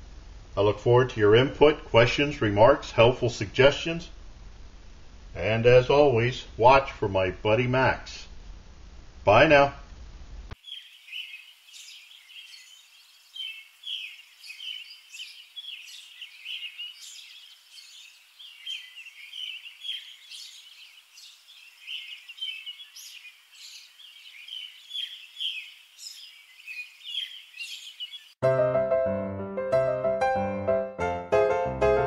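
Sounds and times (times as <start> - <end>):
small birds chirping: 10.5 - 28.4.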